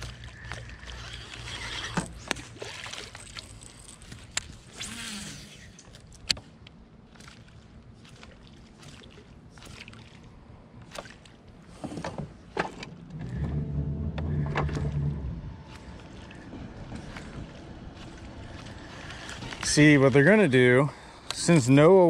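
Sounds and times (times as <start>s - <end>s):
low steady hum: 0.0s - 22.0s
clicks and knocks of fishing gear: 3.1s - 4.7s.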